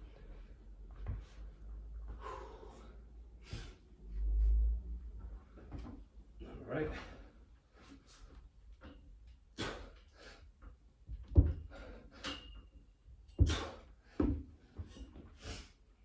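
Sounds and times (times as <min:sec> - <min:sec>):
short sharp breaths: 0:02.1 - 0:03.8.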